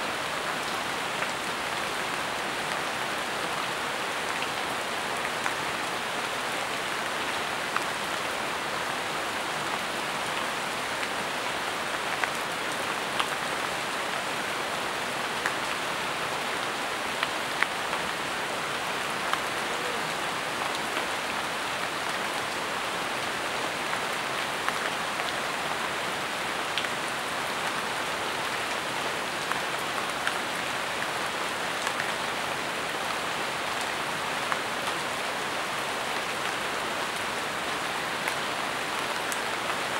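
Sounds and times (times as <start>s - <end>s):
rain on foliage: 0.0s - 39.9s.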